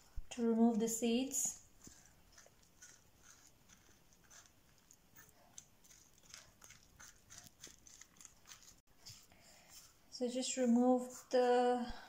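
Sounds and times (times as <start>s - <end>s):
metal spoon scraping squash: 1.1s - 8.8s.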